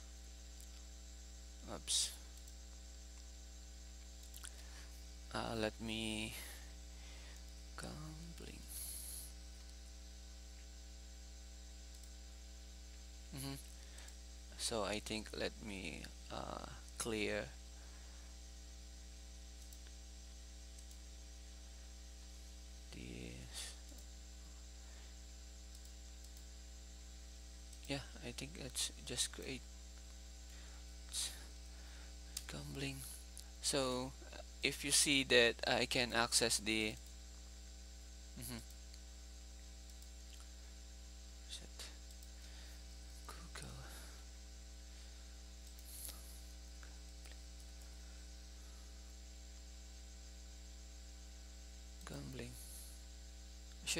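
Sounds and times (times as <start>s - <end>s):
electrical mains hum: 0.0s - 53.9s
faint clicks: 2.3s - 3.3s, 4.0s - 4.7s, 11.9s - 12.2s, 19.6s - 20.0s, 20.7s - 21.1s, 23.8s - 24.1s, 25.7s - 26.5s, 27.7s - 27.9s, 36.8s - 37.2s, 39.8s - 40.6s, 45.6s - 46.2s
faint voice: 13.3s - 13.7s, 38.4s - 38.6s
man mumbling: 13.3s - 13.7s, 38.4s - 38.6s.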